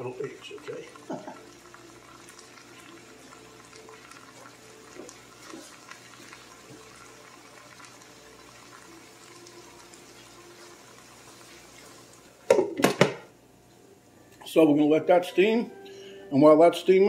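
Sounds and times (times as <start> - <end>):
vegetables sizzling in skillet: 0.0 - 13.4.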